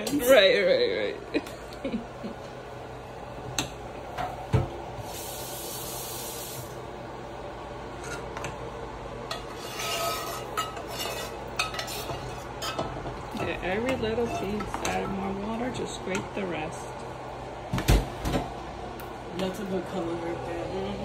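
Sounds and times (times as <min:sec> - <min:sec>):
spoon scraping a cooking pot: 0:08.0 - 0:08.4, 0:09.3 - 0:15.2.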